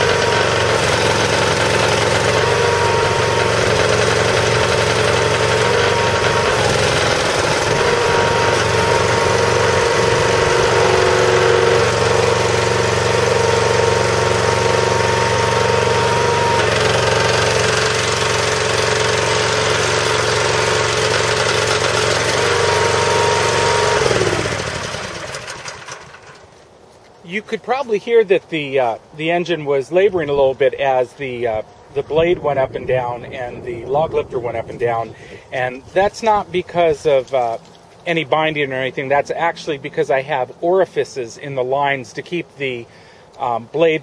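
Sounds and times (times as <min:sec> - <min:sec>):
engine running hydraulic pump: 0:00.0 - 0:27.1.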